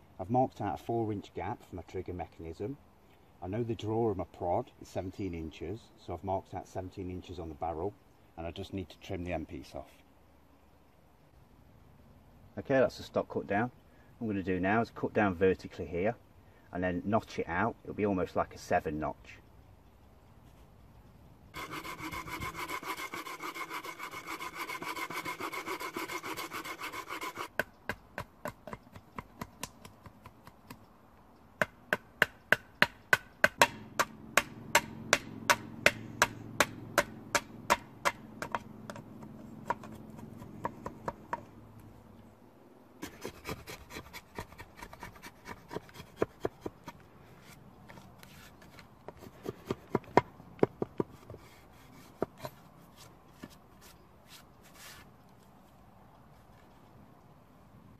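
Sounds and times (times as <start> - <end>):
saw cutting wood: 21.6 - 27.7, 43.0 - 47.6
knife scraping wood: 21.6 - 29.9, 35.8 - 41.4, 43.0 - 50.2, 50.9 - 55.1.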